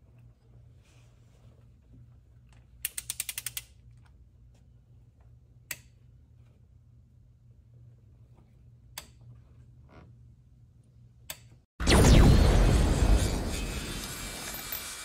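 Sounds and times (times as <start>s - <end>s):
torque wrench ratcheting clicks: 2.8s - 3.8s.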